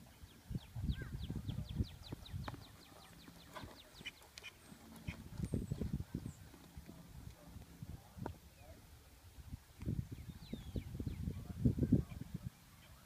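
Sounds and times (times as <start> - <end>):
bird chirping: 0.0 - 6.7, 10.1 - 11.4
hooves thudding on sand: 1.4 - 8.4.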